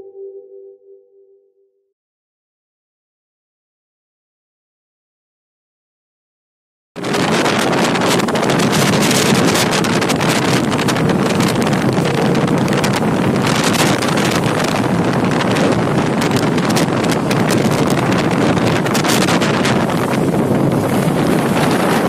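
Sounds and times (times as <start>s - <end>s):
rail clicks and clatter: 7.0s - 22.0s
train wheels rushing on rail: 7.0s - 22.0s
wind buffeting microphone: 7.0s - 22.0s.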